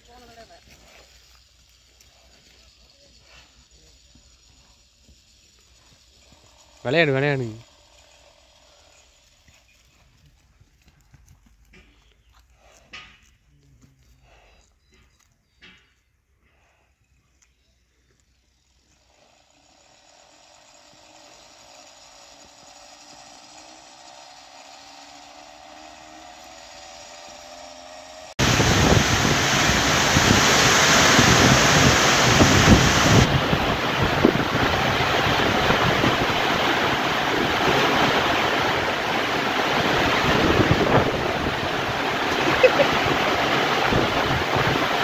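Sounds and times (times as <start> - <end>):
heavy rain pouring: 28.4 - 45.0.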